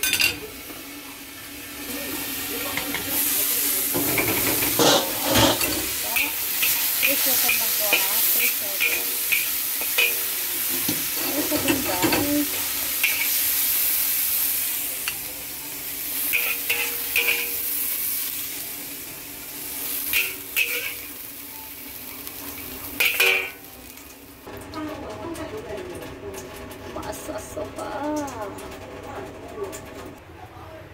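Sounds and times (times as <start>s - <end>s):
beans sizzling in a wok: 0.0s - 24.5s
metal spatula scraping a pan: 4.0s - 13.4s, 20.1s - 21.1s, 23.0s - 23.6s.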